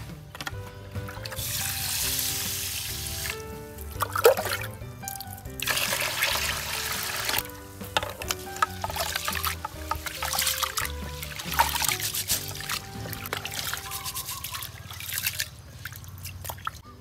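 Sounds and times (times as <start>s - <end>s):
soft background music: 0.0s - 15.4s, 16.8s - 17.0s
water pouring into pot of rice: 5.6s - 7.5s, 8.3s - 15.5s.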